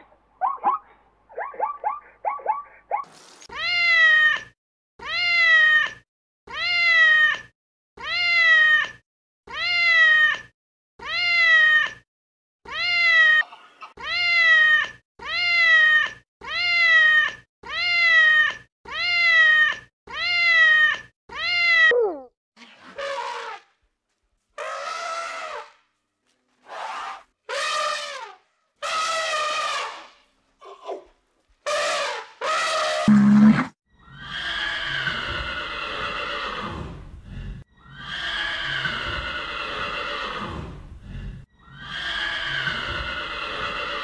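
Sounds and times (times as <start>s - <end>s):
cat meowing: 3.5s - 12.0s.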